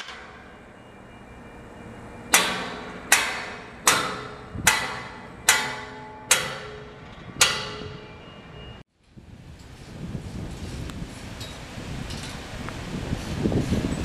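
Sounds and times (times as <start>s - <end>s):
hammer blows on steel: 2.2s - 8.5s.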